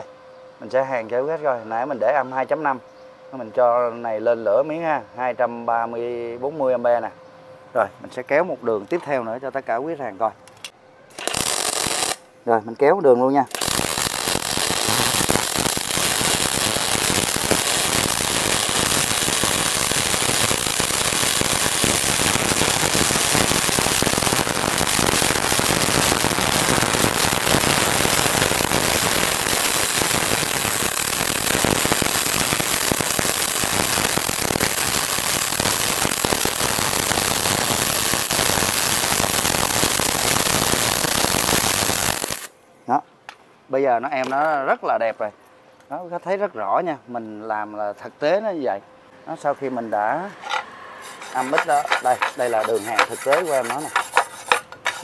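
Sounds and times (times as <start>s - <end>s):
welding arc crackling hiss: 11.1s - 12.3s, 13.5s - 42.6s, 50.5s - 55.0s.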